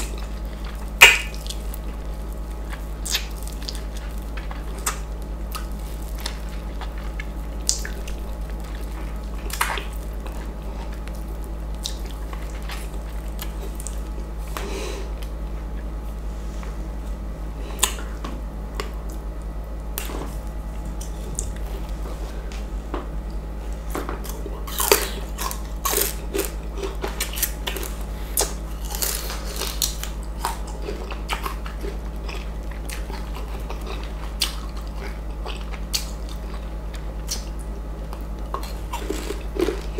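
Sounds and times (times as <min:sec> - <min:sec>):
wet mango eating sounds: 0:00.0 - 0:15.9, 0:24.2 - 0:39.9
low hum: 0:00.0 - 0:39.9.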